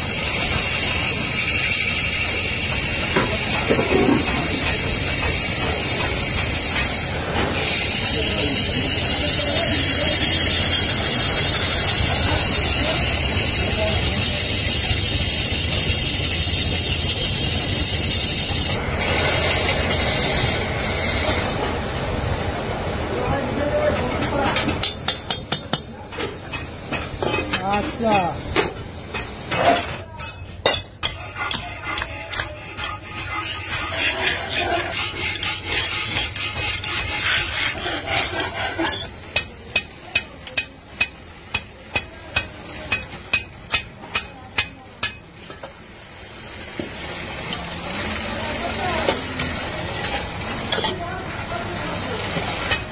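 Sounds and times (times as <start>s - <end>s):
cutting tool scraping metal: 0.4s - 2.4s, 3.7s - 20.0s, 30.7s - 39.1s
hand file rasping on metal: 31.0s - 39.1s.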